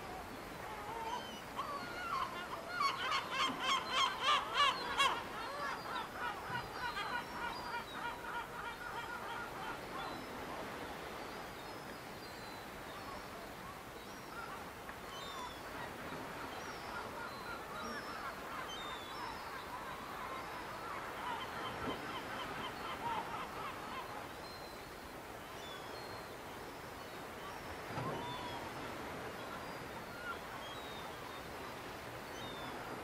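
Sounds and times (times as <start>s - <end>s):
gulls calling: 0.6s - 11.1s, 14.3s - 24.4s.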